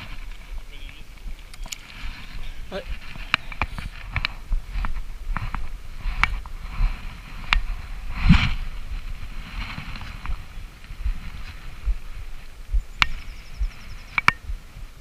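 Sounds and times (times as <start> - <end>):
fishing reel clicks and rustling: 0.2 - 5.6.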